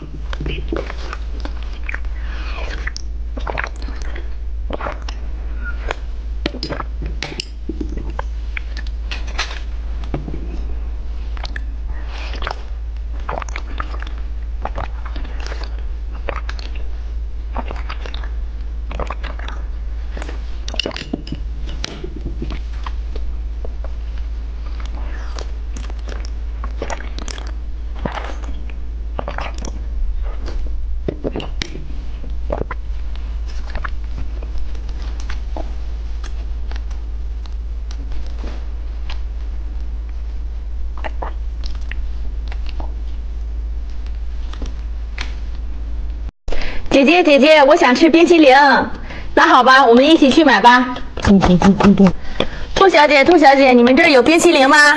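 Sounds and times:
chewing gummy candy: 0:00.0 - 0:09.7, 0:11.3 - 0:38.4, 0:40.9 - 0:43.0
steady low hum: 0:00.0 - 0:54.9
wet sucking and slurping: 0:00.3 - 0:06.9, 0:11.4 - 0:16.9, 0:17.5 - 0:21.1, 0:24.7 - 0:30.5.

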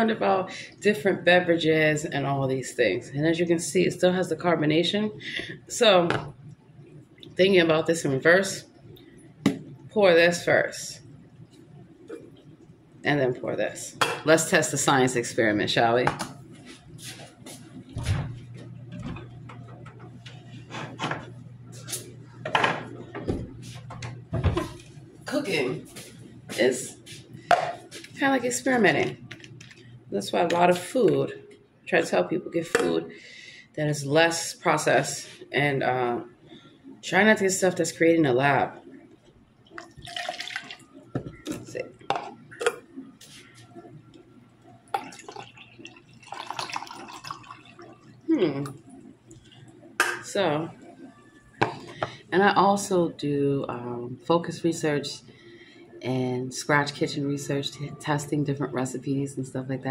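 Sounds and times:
low steady hum: 0:00.0 - 0:59.9
sparkling water pouring and fizzing: 0:39.8 - 0:40.9, 0:45.0 - 0:48.2
drips: 0:44.9 - 0:48.6.

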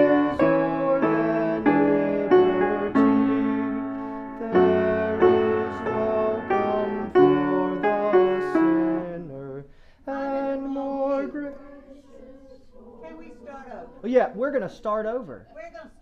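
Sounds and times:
piano playing hymn chords: 0:00.0 - 0:09.5.

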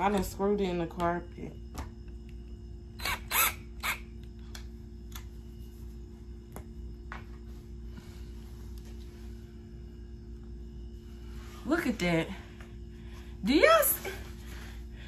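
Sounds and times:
cordless drill whirring: 0:03.0 - 0:04.1.

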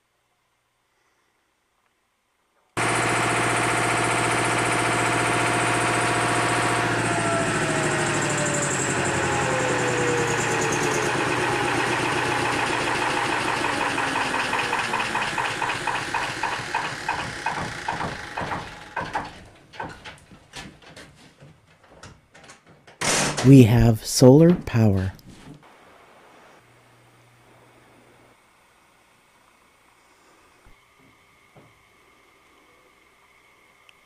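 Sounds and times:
generator running and winding down: 0:02.8 - 0:19.6.

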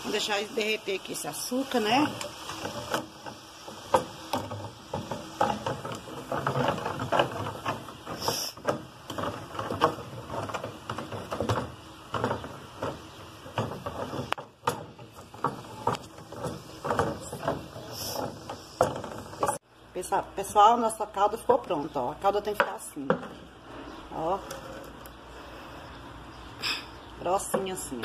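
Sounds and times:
wooden spoon scraping metal pan: 0:01.4 - 0:19.6.

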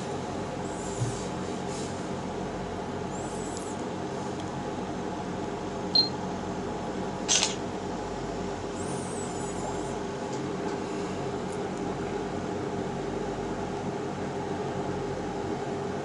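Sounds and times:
steady background hum: 0:00.0 - 0:16.0
short high beep: 0:06.0 - 0:06.2
camera shutter sound: 0:07.3 - 0:07.6.

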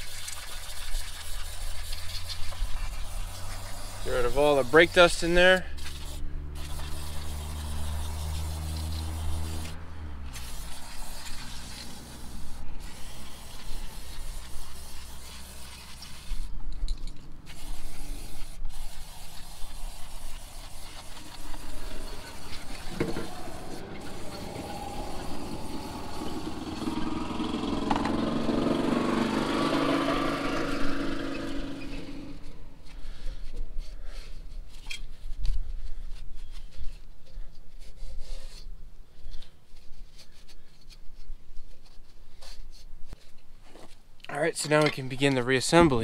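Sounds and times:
aerosol spray hissing: 0:02.5 - 0:05.1, 0:05.7 - 0:09.8, 0:10.4 - 0:16.5, 0:17.5 - 0:27.3.

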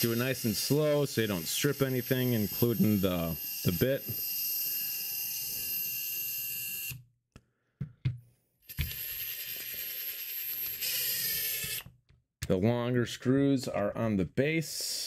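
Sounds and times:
cordless drill running: 0:00.0 - 0:07.0, 0:08.7 - 0:11.9.

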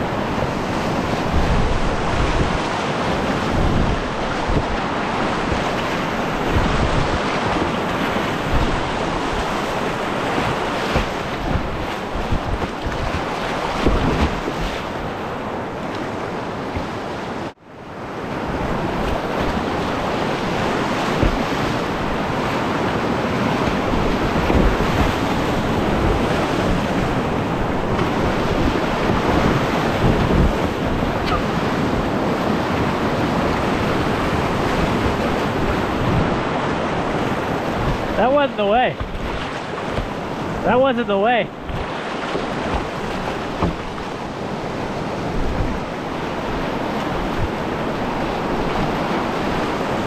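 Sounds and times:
whitewater rushing: 0:00.0 - 0:17.6, 0:18.2 - 0:50.0
water splashing: 0:00.7 - 0:17.5, 0:18.6 - 0:50.0
low thumps on microphone: 0:10.4 - 0:13.2, 0:13.8 - 0:14.7, 0:21.1 - 0:22.2, 0:29.0 - 0:32.1, 0:39.0 - 0:40.3, 0:41.6 - 0:44.1.

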